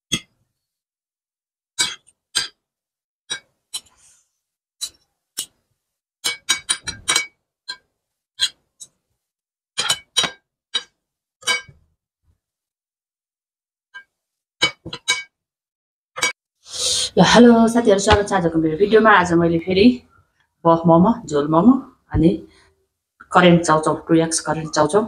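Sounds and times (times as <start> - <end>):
cutlery clinking on a ceramic plate: 6.2 - 7.3, 9.8 - 11.7.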